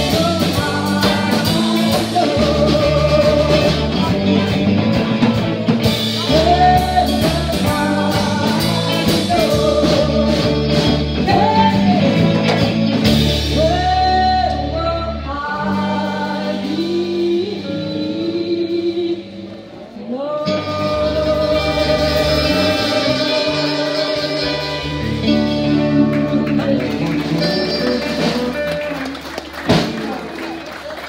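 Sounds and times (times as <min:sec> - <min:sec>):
woman singing: 0:00.0 - 0:04.8, 0:06.0 - 0:12.8, 0:13.4 - 0:29.0
live country band playing: 0:00.0 - 0:31.0.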